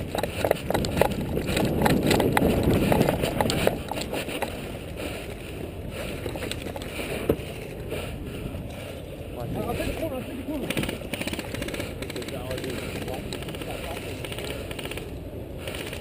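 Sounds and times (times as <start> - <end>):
gear clattering: 0.0 - 4.6
running footsteps on dirt: 0.0 - 5.4.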